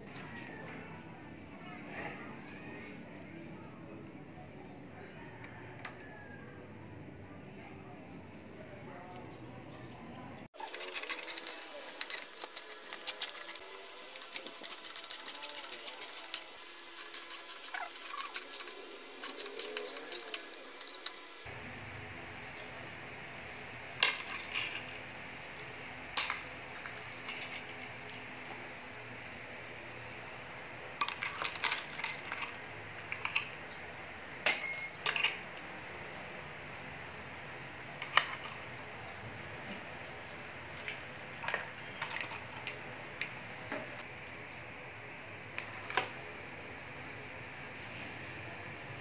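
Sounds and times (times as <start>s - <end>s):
metal keys clinking and jingling: 10.6s - 30.5s, 31.1s - 35.6s.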